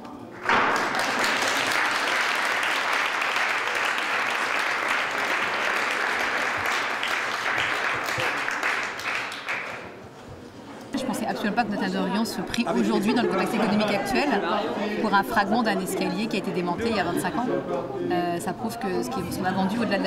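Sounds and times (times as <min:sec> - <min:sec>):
audience applauding: 0:00.4 - 0:10.0.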